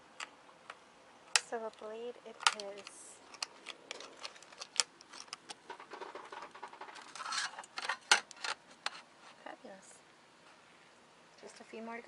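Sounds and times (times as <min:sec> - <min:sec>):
knife scraping metal plate: 0:06.0 - 0:08.0.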